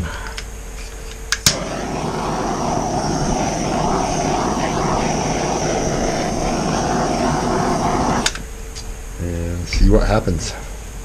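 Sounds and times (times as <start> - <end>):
electric blower whooshing: 1.5 - 8.5.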